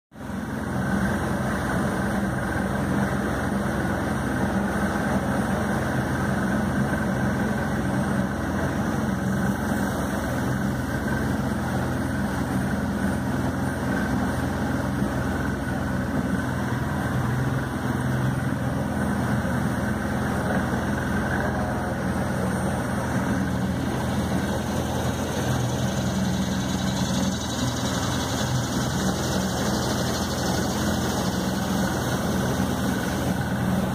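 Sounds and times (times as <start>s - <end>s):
outboard motor running: 0.1s - 33.9s.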